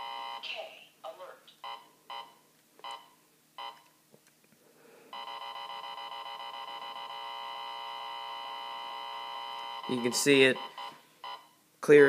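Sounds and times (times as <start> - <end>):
continuous alert tone: 5.2 - 11.6.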